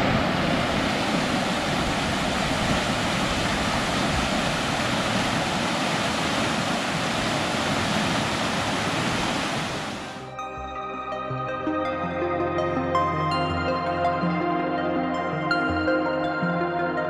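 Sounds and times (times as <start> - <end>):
river rapids rushing: 0.0 - 10.3
soft ambient music: 10.0 - 17.0.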